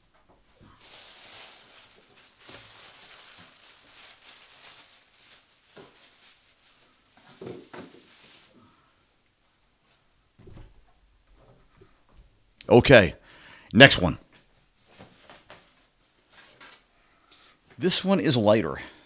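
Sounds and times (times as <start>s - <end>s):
plastic bag crinkling: 0.6s - 8.8s.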